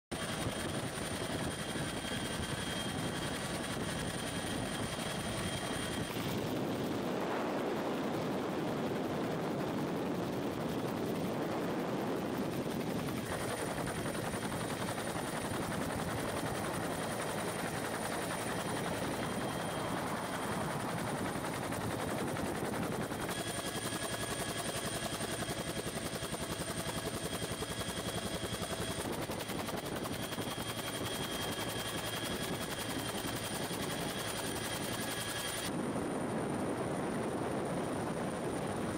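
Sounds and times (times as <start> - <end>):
helicopter engine whine: 0.1 - 38.9
helicopter rotor beating: 0.1 - 38.9.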